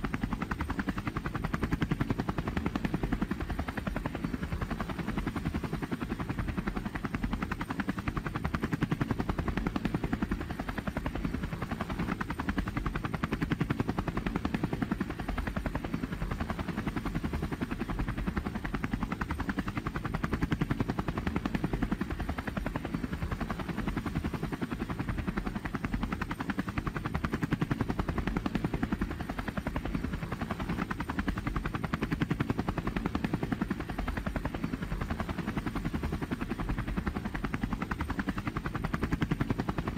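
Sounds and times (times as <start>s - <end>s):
helicopter rotor chop: 0.0s - 39.9s.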